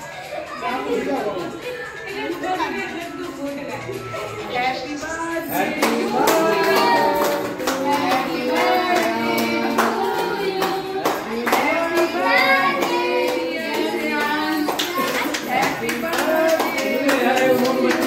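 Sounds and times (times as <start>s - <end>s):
people singing together: 1.7s - 18.0s
clapping on a steady beat: 5.7s - 18.0s.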